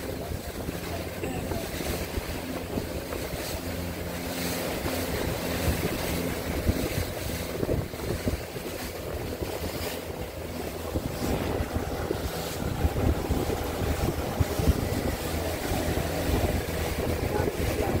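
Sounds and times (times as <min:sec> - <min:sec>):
outboard engine running: 0:00.0 - 0:18.0
water rushing along hull: 0:00.0 - 0:18.0
wind buffeting microphone: 0:00.0 - 0:18.0.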